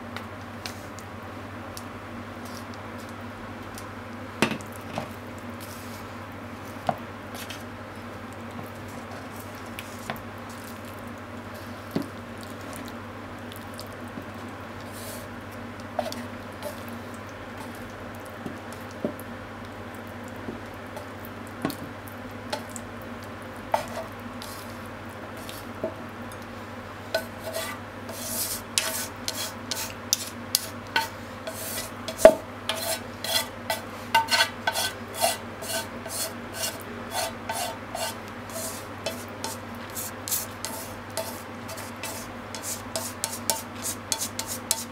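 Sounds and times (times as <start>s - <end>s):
chopsticks scraping a frying pan: 16.0s - 16.9s, 23.7s - 24.7s, 27.1s - 44.9s.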